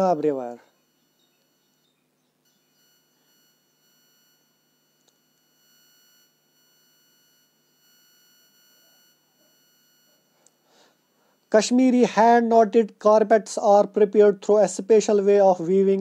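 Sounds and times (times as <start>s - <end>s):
faint high-pitched whine: 0.0s - 16.0s.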